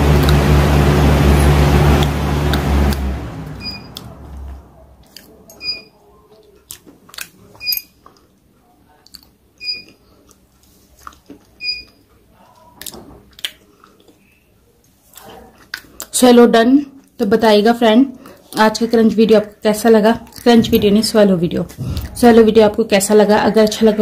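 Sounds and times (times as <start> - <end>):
person swallowing food: 21.7 - 22.2.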